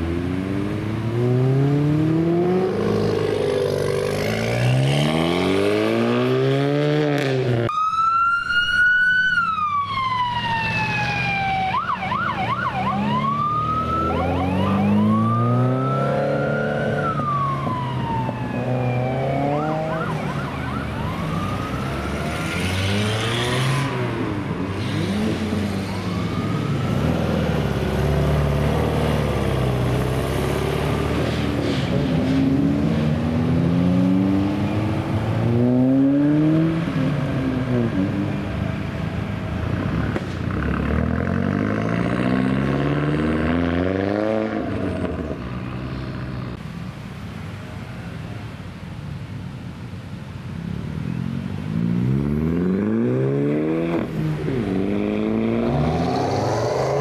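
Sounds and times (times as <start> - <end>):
car engines revving: 0.0 - 7.7, 10.0 - 48.6, 49.8 - 57.0
siren-like wail: 7.7 - 22.5, 25.6 - 28.0.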